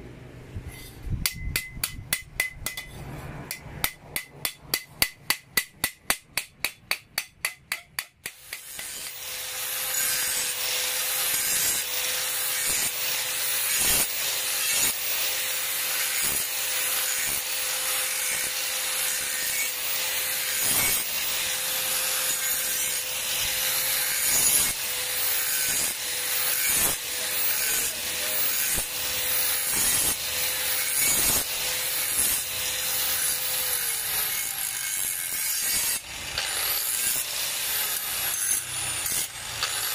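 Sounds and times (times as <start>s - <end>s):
hammer striking steel on anvil: 0.7s - 9.2s
angle grinder grinding steel: 7.7s - 39.9s.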